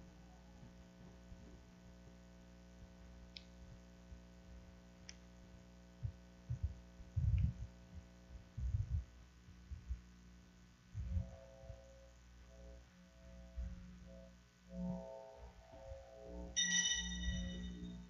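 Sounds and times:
mains hum: 0.0s - 18.0s
faint clicks: 3.3s - 3.6s, 5.0s - 5.3s
muffled microphone handling thumps: 6.1s - 10.0s.

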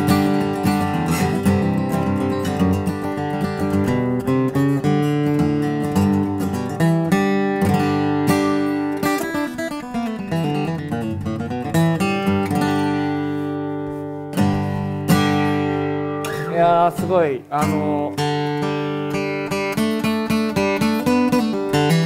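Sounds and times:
acoustic guitar playing solo: 0.0s - 22.0s.

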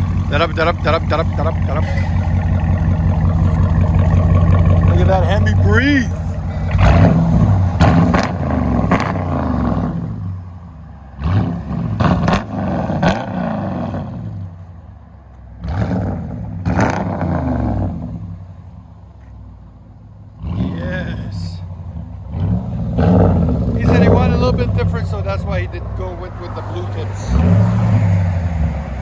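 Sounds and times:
loud engine idle: 0.0s - 6.9s
engine revving in throttle blips: 0.0s - 14.6s, 15.5s - 18.4s, 20.3s - 29.0s.

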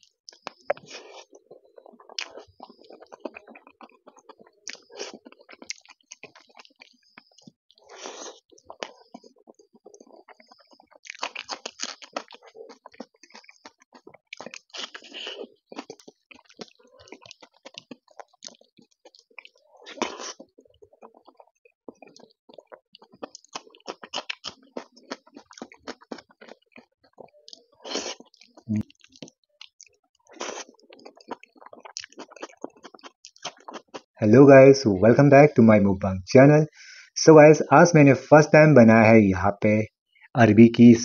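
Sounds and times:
wet chewing and lip-smacking: 0.0s - 34.2s
crunchy bites: 10.1s - 19.2s, 22.0s - 26.9s, 27.5s - 34.1s.

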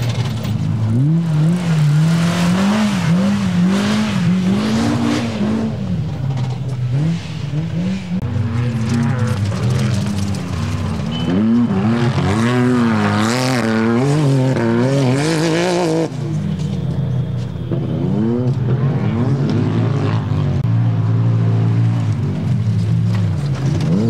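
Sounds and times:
racing engine revving hard: 0.9s - 5.8s.

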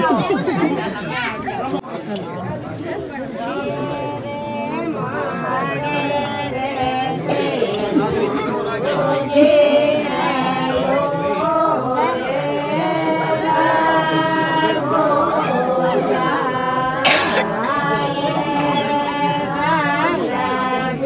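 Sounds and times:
unaccompanied voices singing: 2.0s - 21.0s.

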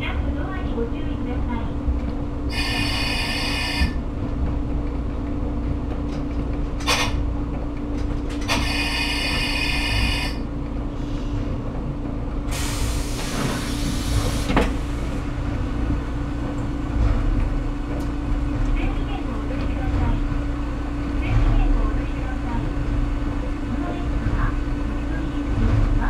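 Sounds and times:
compressed air hissing: 12.5s - 14.6s.

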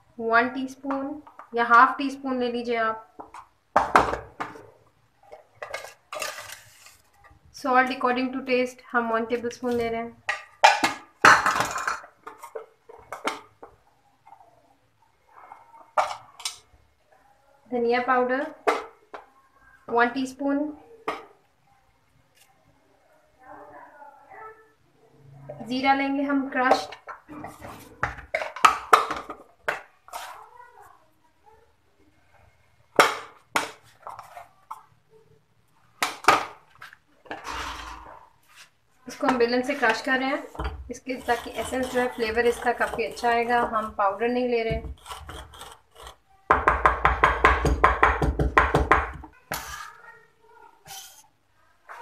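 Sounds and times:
utensils knocking on marble: 39.2s - 44.0s.

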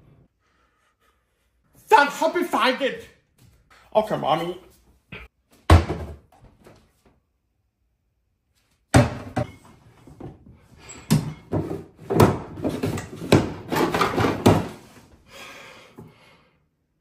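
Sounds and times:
cabinet doors and drawers knocking: 5.7s - 6.3s, 8.9s - 10.4s, 11.1s - 14.9s.

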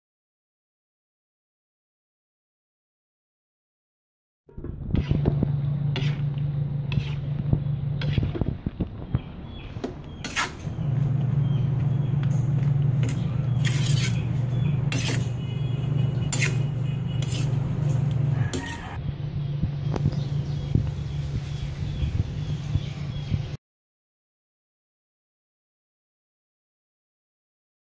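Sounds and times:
steady low hum: 4.5s - 23.6s
metal utensil scraping a wok: 4.8s - 8.5s, 10.2s - 10.9s, 12.2s - 19.0s.

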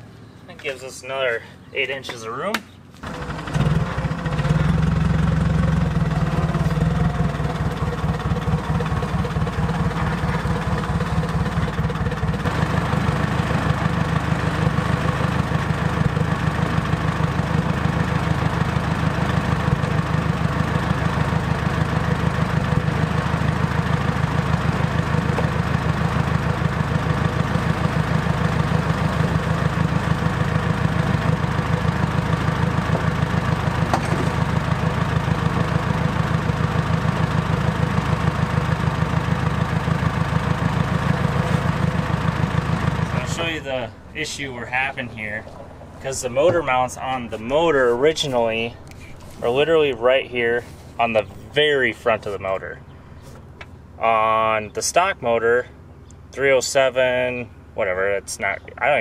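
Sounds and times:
motor idling with even pulse: 3.0s - 44.8s.

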